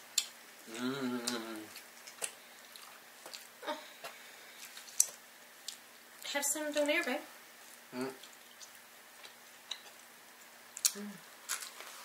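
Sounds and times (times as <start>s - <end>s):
quiet chewing: 0.2s - 7.0s, 7.6s - 12.0s
person humming mmm: 0.7s - 1.7s, 8.0s - 8.2s, 10.8s - 11.3s.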